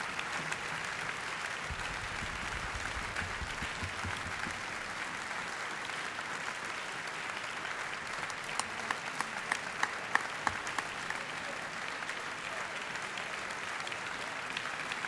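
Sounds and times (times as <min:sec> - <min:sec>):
audience applauding: 0:00.0 - 0:15.0
loud single claps: 0:01.6 - 0:05.3.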